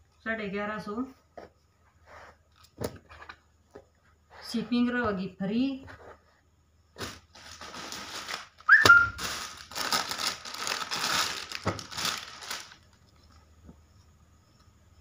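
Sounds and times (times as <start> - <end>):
plastic packaging crinkling: 7.0 - 13.2
brief high squeak: 8.7 - 9.2.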